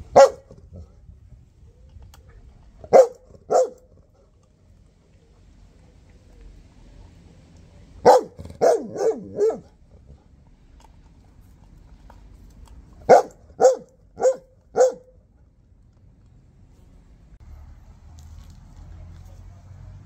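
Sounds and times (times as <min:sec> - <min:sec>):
dog barking: 0:00.1 - 0:00.6, 0:02.8 - 0:04.0, 0:08.0 - 0:09.8, 0:13.0 - 0:15.2.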